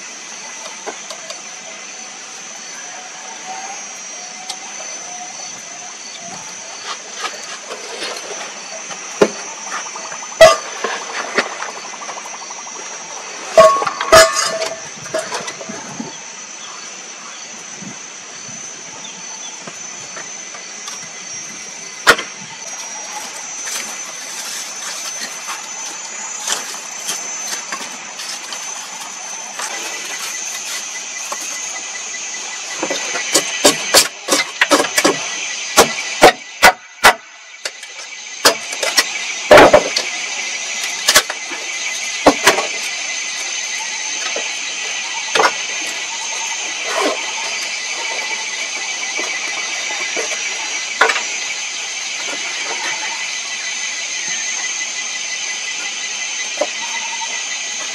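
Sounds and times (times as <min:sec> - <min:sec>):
high-pitched drone: 0:00.0 - 0:57.9
wood chopping knocks: 0:35.8 - 0:37.2.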